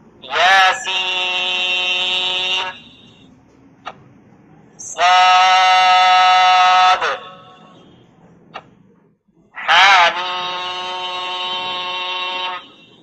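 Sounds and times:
man reciting held notes: 0:00.2 - 0:03.3, 0:04.7 - 0:07.8, 0:09.5 - 0:13.0.

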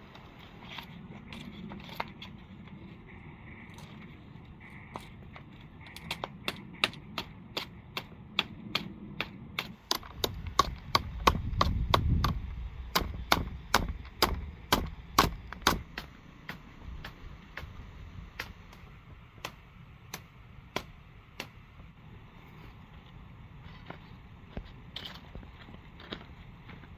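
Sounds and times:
machete chopping bamboo: 0:06.0 - 0:17.7.

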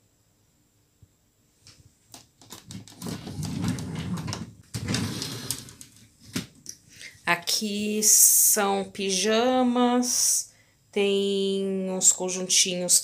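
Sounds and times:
drawer clicks and rattles: 0:02.4 - 0:06.6
drawer pulled open: 0:02.5 - 0:06.5
drawer sliding shut: 0:02.5 - 0:06.5.

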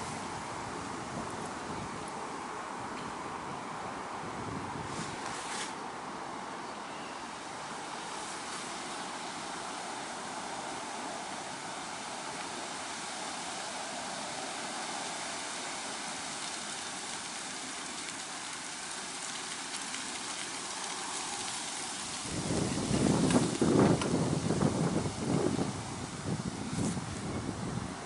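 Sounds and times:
wind buffeting microphone: 0:00.0 - 0:05.3, 0:19.5 - 0:28.0
steady outdoor hiss: 0:00.0 - 0:28.0.

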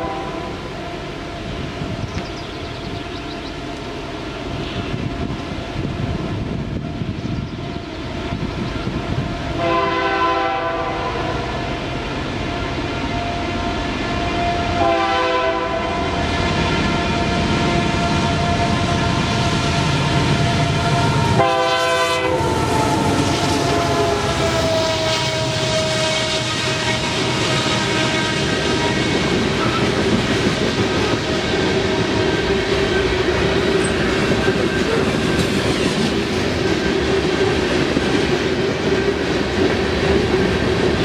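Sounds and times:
train air horn blasts: 0:00.0 - 0:02.1, 0:09.1 - 0:36.0
train rumbling past: 0:00.0 - 0:41.0.

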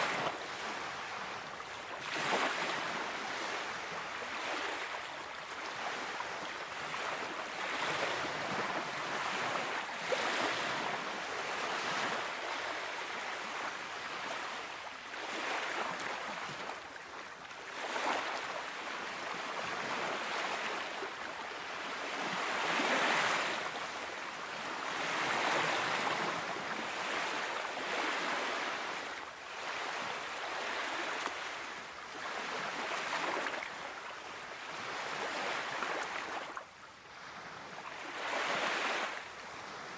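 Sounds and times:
small sea waves lapping: 0:00.0 - 0:39.9.

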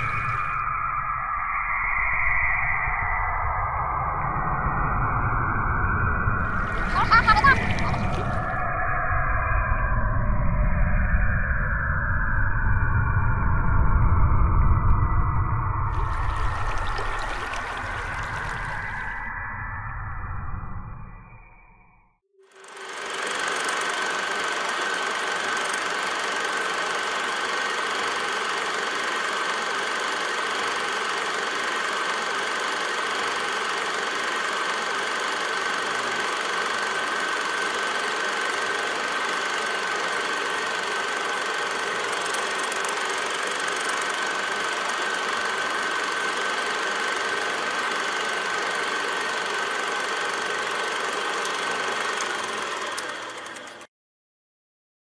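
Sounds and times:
film projector rattling and whirring: 0:15.9 - 0:19.1, 0:22.4 - 0:53.9.

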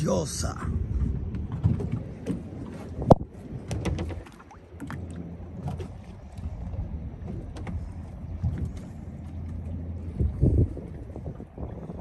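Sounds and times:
boat engine low rumble: 0:00.0 - 0:12.0.

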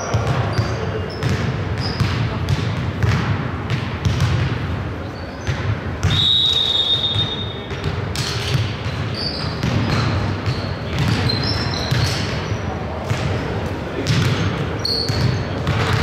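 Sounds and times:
sneaker squeaks: 0:00.0 - 0:02.4, 0:05.0 - 0:13.3, 0:14.0 - 0:16.0
basketball dribbling: 0:00.1 - 0:04.6, 0:07.0 - 0:12.3, 0:14.0 - 0:16.0
referee whistle blast: 0:06.1 - 0:07.7.

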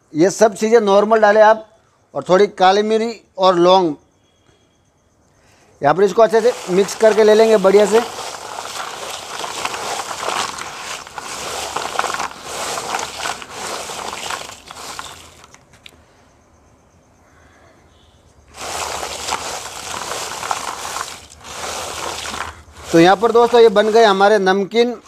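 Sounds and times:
chips tossed in plastic tub: 0:06.0 - 0:15.6, 0:18.5 - 0:25.0.

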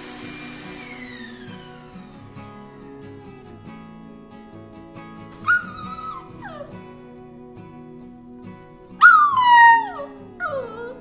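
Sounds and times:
puppy whining: 0:05.4 - 0:06.9, 0:09.0 - 0:11.0.

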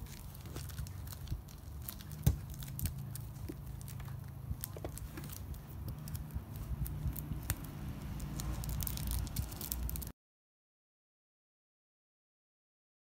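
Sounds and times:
plastic packaging crinkling: 0:00.0 - 0:10.1.

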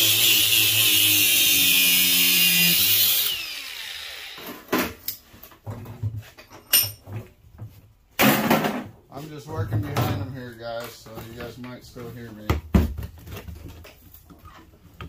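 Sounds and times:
angle grinder cutting metal: 0:00.0 - 0:04.7.

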